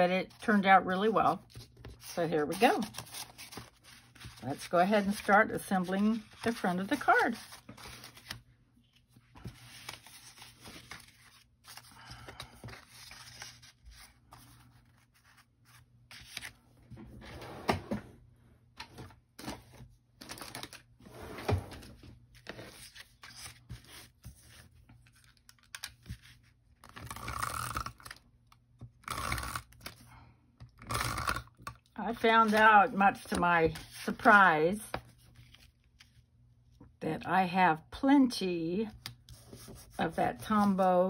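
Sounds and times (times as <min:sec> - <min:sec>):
paper rustling and scraping: 0:01.4 - 0:08.4, 0:09.0 - 0:16.6, 0:19.0 - 0:27.7, 0:32.1 - 0:34.4.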